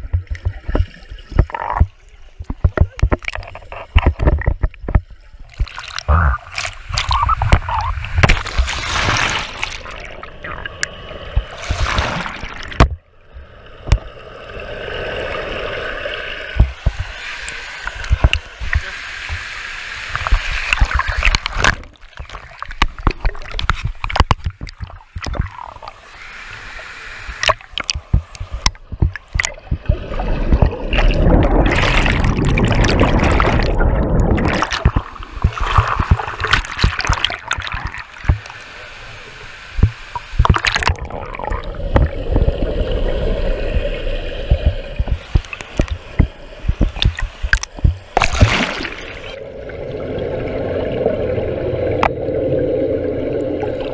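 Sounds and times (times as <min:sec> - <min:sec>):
sharp clicks and knocks: 0:00.0 - 0:08.6, 0:12.6 - 0:13.1, 0:16.6 - 0:19.5, 0:20.1 - 0:26.0, 0:27.4 - 0:38.5, 0:39.8 - 0:41.1, 0:41.9 - 0:42.5, 0:44.5 - 0:48.6
pool water sloshing and gurgling: 0:00.0 - 0:53.9.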